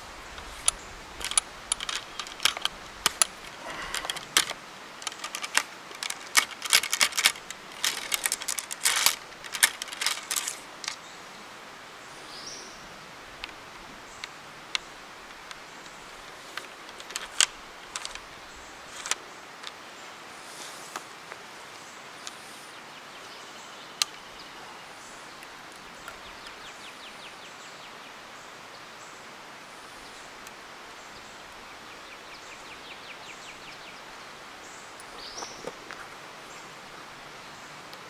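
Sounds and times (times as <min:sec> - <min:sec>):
ramrod clicking in rifle barrel: 0:00.3 - 0:11.0, 0:16.5 - 0:18.3, 0:18.9 - 0:19.8.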